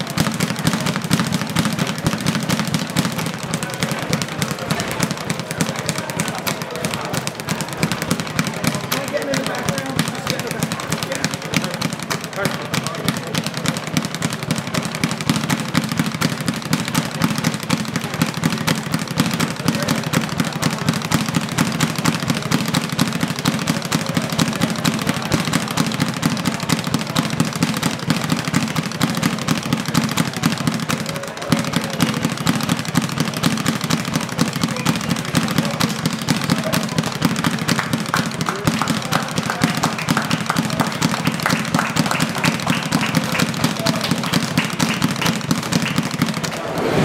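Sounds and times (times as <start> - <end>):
speed bag rattling: 0.0 - 46.6.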